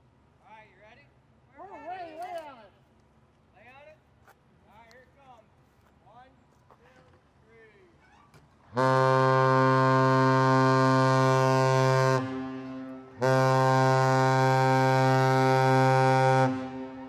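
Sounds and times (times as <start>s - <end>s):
deep ship horn blasts: 8.7s - 17.0s.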